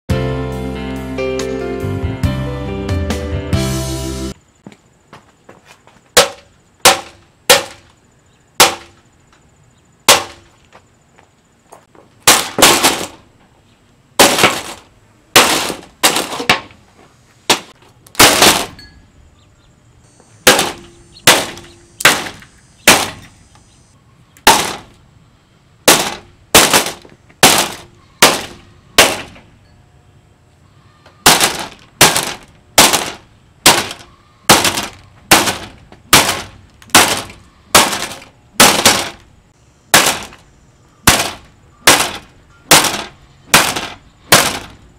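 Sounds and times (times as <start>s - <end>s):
pole striking plastic fan blades: 6.2s - 7.9s, 14.2s - 16.8s, 25.9s - 29.5s, 31.2s - 39.3s, 39.9s - 40.4s, 41.1s - 44.8s.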